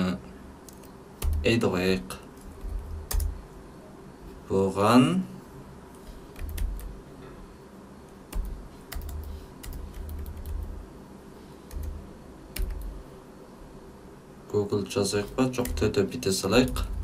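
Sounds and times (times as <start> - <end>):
keyboard keystrokes: 0.7 - 1.5, 2.4 - 3.4, 8.3 - 10.7, 12.6 - 13.0.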